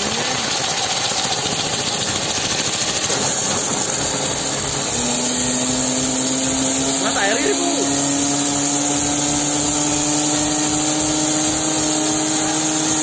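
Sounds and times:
pressure washer jet hissing: 0:00.0 - 0:13.0.

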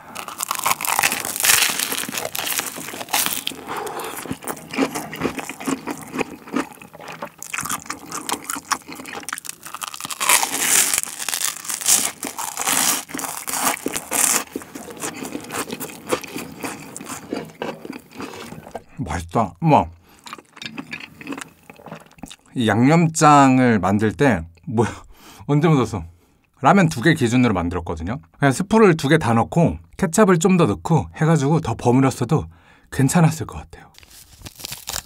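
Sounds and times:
biting into crispy toast: 0:00.0 - 0:18.8, 0:34.0 - 0:35.0
crunchy chewing of toast: 0:00.0 - 0:18.9, 0:20.2 - 0:22.4, 0:34.0 - 0:35.0.

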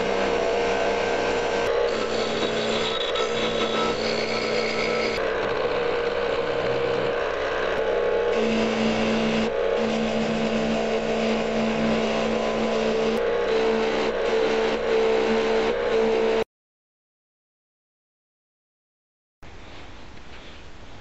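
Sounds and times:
electric motor hum: 0:00.0 - 0:16.4.

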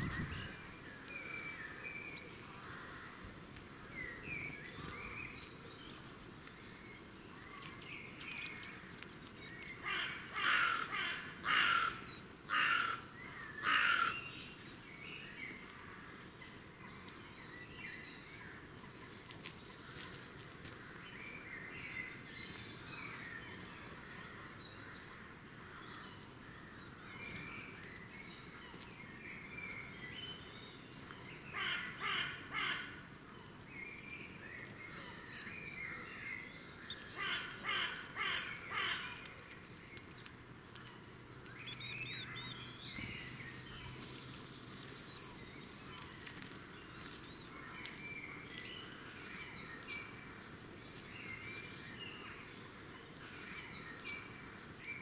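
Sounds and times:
songbirds twittering: 0:00.0 - 0:55.0
rapidly repeated lower bird calls: 0:04.0 - 0:15.0, 0:21.4 - 0:40.0, 0:40.8 - 0:55.0.

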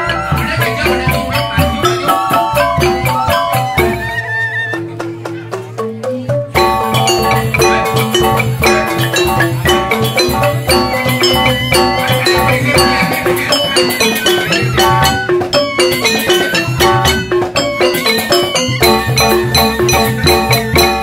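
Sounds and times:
hand drum beat: 0:00.0 - 0:21.0
interlocking notes on tuned bars: 0:05.2 - 0:21.0.

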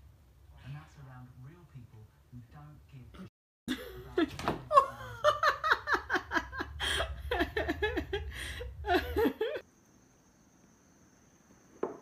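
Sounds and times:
person laughing in rhythmic bursts: 0:03.8 - 0:09.6.

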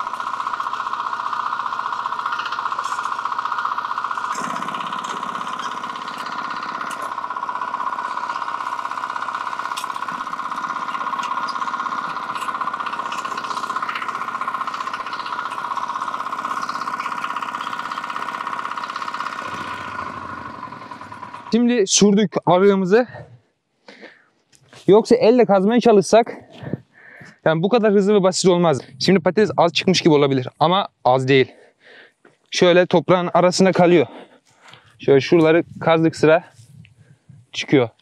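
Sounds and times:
tractor engine knocking: 0:00.0 - 0:21.7.

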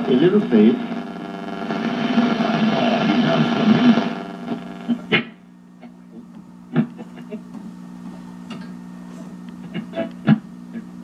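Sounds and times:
radio station programme: 0:00.0 - 0:05.4
radio tuning noise: 0:00.0 - 0:07.6, 0:09.2 - 0:11.0
radio hum between stations: 0:00.0 - 0:11.0.

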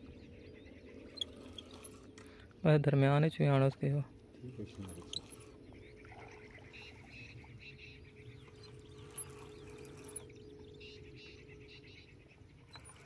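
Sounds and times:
small birds chirping: 0:00.0 - 0:03.0, 0:04.3 - 0:13.0
steady low hum: 0:00.0 - 0:13.0.

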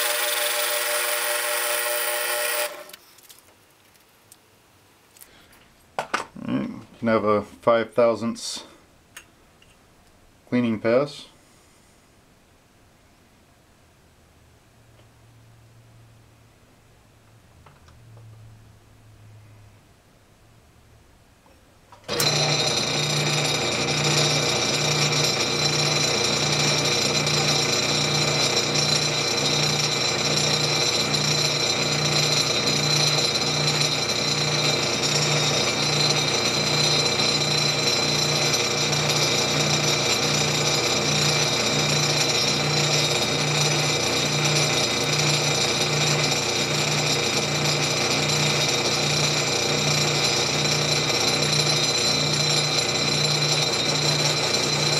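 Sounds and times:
metal lathe whining and humming: 0:00.0 - 0:03.0, 0:22.1 - 0:54.9.

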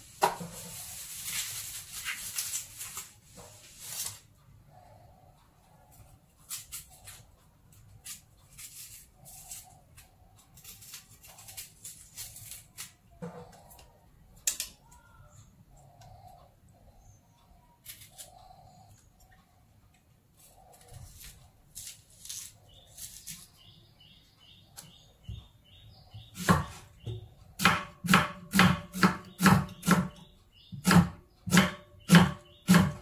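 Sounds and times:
faint bird calls: 0:14.7 - 0:19.6
knife chopping on cutting board: 0:26.4 - 0:26.8, 0:27.6 - 0:30.2, 0:30.8 - 0:33.0.

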